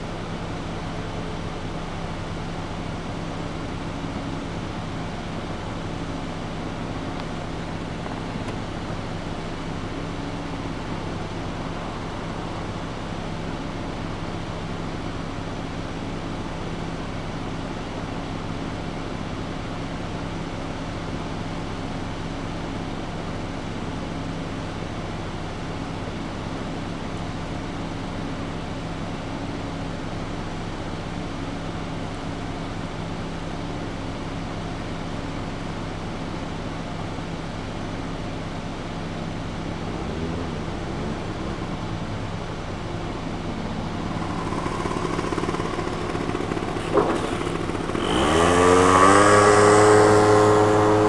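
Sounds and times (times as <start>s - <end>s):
low engine hum: 0.0s - 18.4s, 36.6s - 51.0s
motorcycle riding by: 39.6s - 51.0s.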